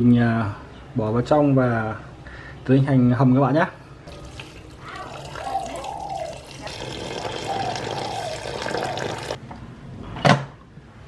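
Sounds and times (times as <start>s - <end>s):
water pouring into a pot: 4.1s - 9.4s.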